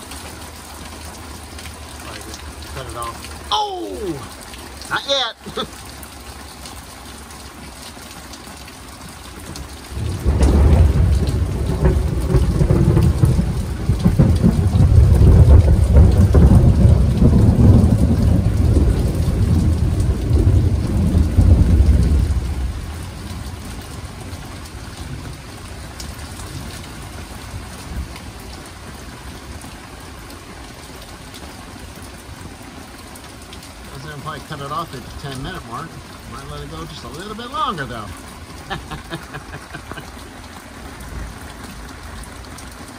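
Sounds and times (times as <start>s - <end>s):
steady rain falling: 0.0s - 42.9s
low rumble of thunder: 9.9s - 28.2s.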